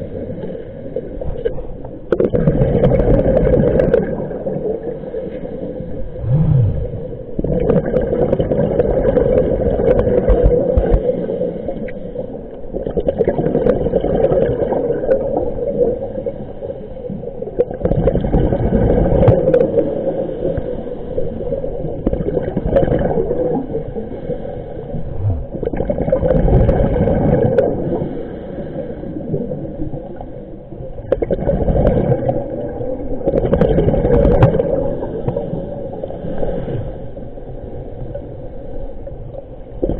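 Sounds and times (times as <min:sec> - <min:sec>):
water gurgling underwater: 0:00.9 - 0:12.0, 0:12.6 - 0:28.1, 0:29.2 - 0:36.1
steady hum: 0:05.9 - 0:07.5, 0:24.8 - 0:25.7
short low tone: 0:06.2 - 0:07.4, 0:25.0 - 0:25.6.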